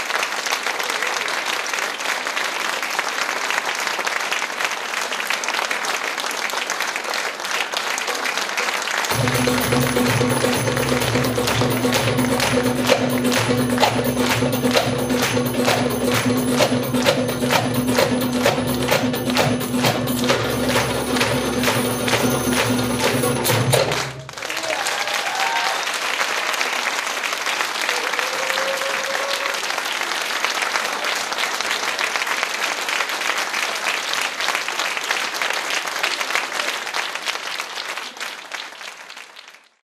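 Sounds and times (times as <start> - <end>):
audience applauding: 0.0 - 39.8
goblet drums playing fast rhythm: 9.1 - 24.3.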